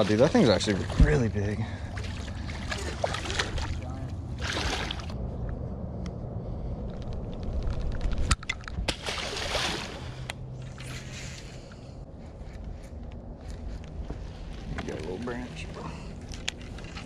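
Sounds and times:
low steady hum: 0.0 - 17.0
fish splashing in water: 1.8 - 3.8, 4.4 - 5.2, 8.9 - 10.9.

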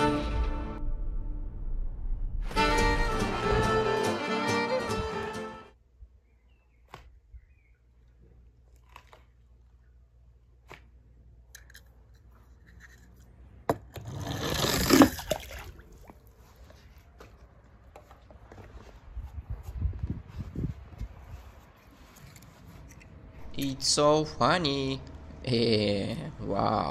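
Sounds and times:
toy car splashing into water: 14.4 - 15.8.

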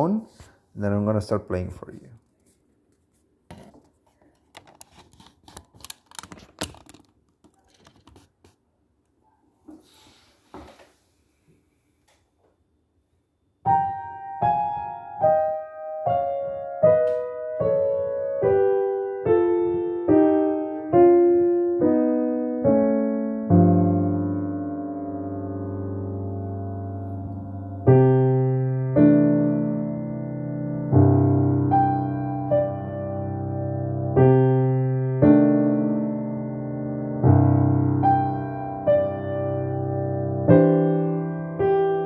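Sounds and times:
phone being handled: 3.5 - 8.6
piano melody: 13.6 - 42.0.

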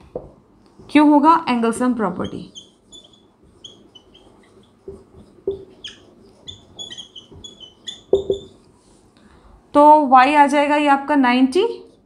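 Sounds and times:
marker knocking on board: 0.1 - 0.4, 3.0 - 8.5
marker squeaking on whiteboard: 1.9 - 8.7.

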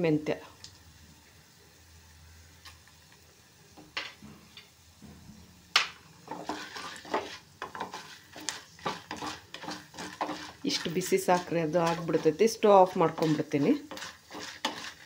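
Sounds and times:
grains scraping and rattling in pan: 6.2 - 15.0
spatula knocking on pan: 13.0 - 15.0.

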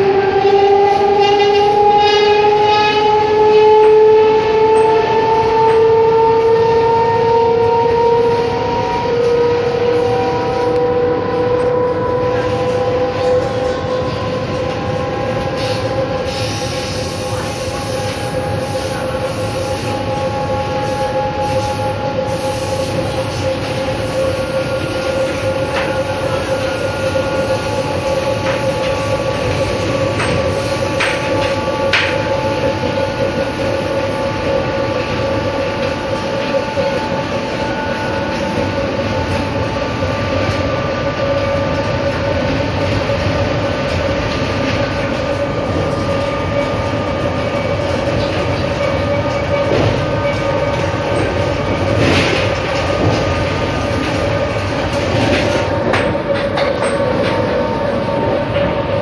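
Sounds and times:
train motor and gear whine: 0.0 - 59.0.

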